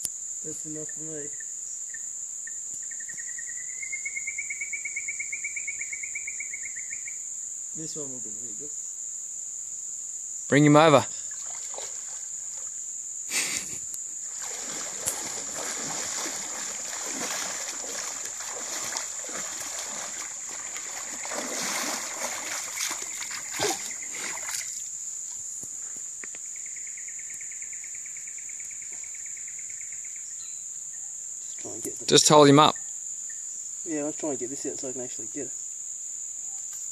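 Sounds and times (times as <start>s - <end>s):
high insect chorus: 0.0s - 36.9s
insect buzz: 0.0s - 36.9s
wading splashes in shallow water: 11.2s - 12.8s, 14.2s - 24.9s.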